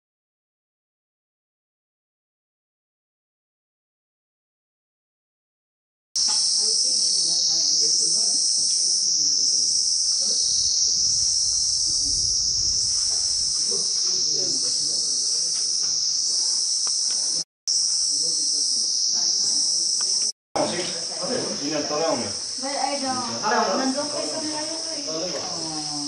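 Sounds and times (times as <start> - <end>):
insects droning shrilly: 6.2 - 26.0.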